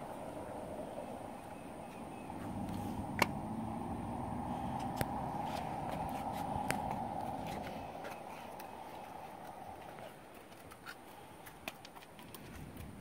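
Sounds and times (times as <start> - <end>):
steady rushing noise: 0.0 - 10.0
hooves on rocky ground: 4.6 - 13.0.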